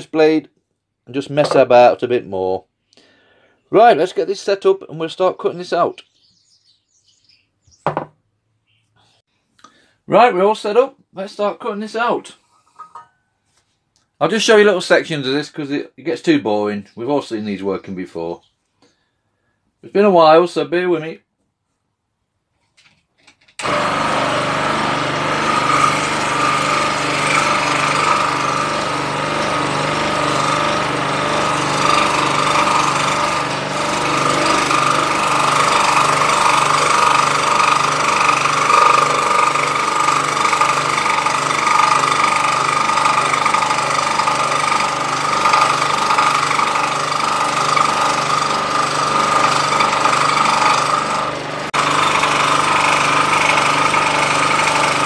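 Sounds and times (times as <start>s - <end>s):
scroll saw cutting: 23.6s - 55.0s.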